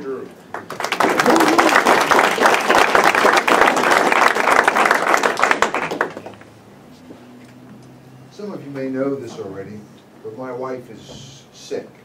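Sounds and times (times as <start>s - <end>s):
audience applauding: 0.5s - 6.5s.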